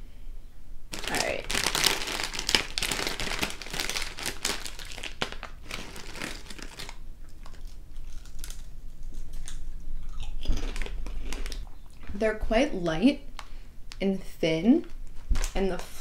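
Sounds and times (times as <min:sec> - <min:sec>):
chip bag crinkling: 0:00.9 - 0:12.2, 0:14.8 - 0:15.8
chip crunching: 0:00.9 - 0:12.2.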